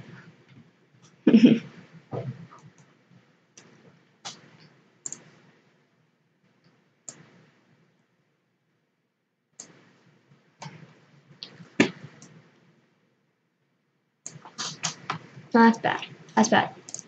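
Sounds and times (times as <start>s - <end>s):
computer mouse clicks: 3.6s - 5.4s, 7.1s - 7.4s, 9.6s - 9.8s, 14.2s - 15.3s, 16.8s - 17.0s.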